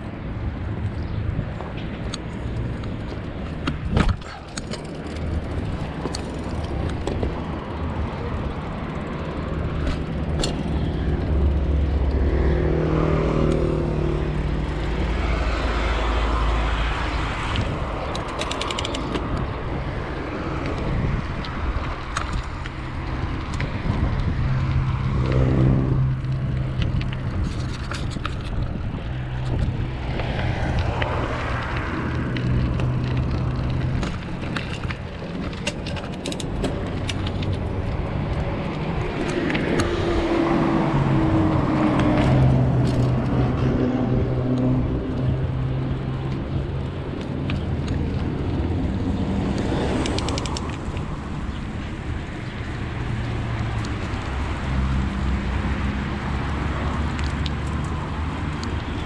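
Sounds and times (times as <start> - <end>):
street traffic: 0.0 - 59.0
vehicle engine hum: 0.0 - 59.0
wind rumble on microphone: 0.0 - 59.0
small clicks and rattles: 17.4 - 19.6, 26.2 - 40.0, 42.0 - 43.6, 44.4 - 55.6, 56.5 - 59.0.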